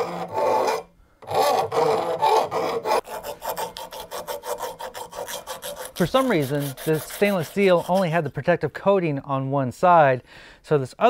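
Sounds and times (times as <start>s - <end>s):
hand file rasping on metal: 0.0s - 8.4s.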